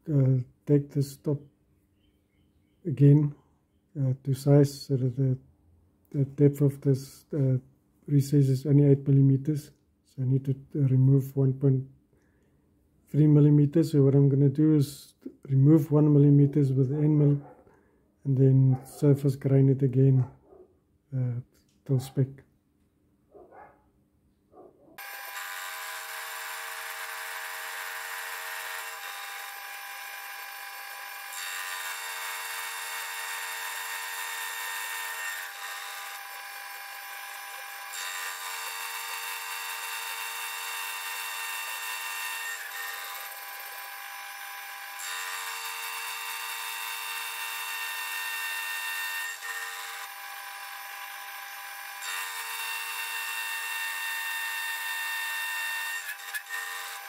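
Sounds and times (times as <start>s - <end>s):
cutter cutting metal: 25.0s - 57.0s
milling machine spindle whine: 25.0s - 57.0s.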